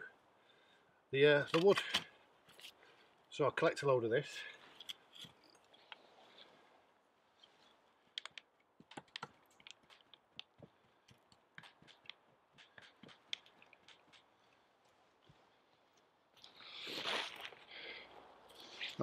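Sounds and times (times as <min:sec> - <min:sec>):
shovel scraping soil: 0:16.5 - 0:17.6.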